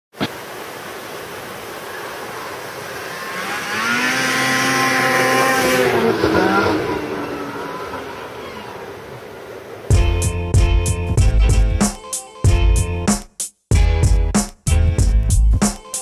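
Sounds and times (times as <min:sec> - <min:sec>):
snowmobile engine passing by: 0:01.9 - 0:09.9.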